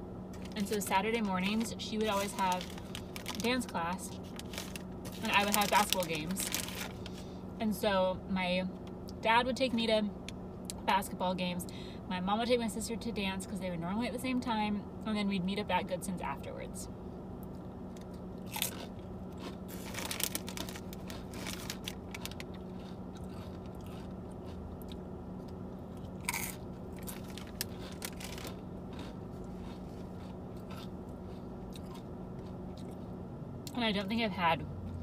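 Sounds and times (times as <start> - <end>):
steady low hum: 0.0 - 35.0
crunchy chip chewing: 0.4 - 7.2, 17.9 - 33.1.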